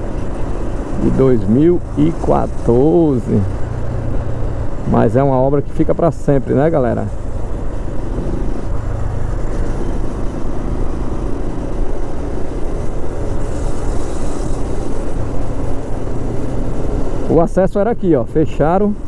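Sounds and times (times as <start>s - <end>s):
road noise hum: 0.0s - 19.0s
motorcycle engine running: 6.4s - 17.3s.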